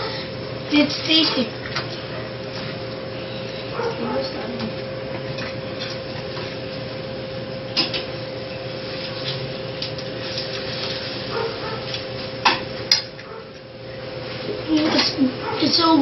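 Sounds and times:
steady background hum: 0.0s - 16.0s.

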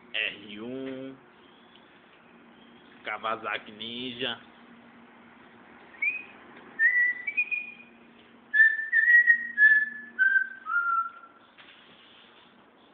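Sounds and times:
person whistling a tune: 6.0s - 7.8s, 8.5s - 11.3s.

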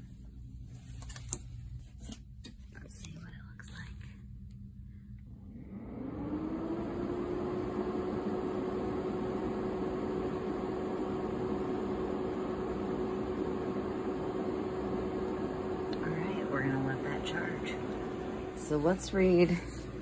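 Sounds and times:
cooling fan whirring: 0.0s - 20.0s.

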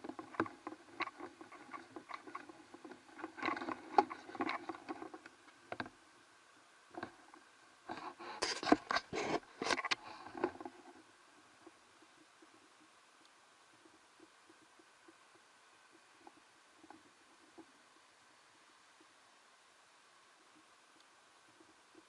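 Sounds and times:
rustling: 0.0s - 6.0s.

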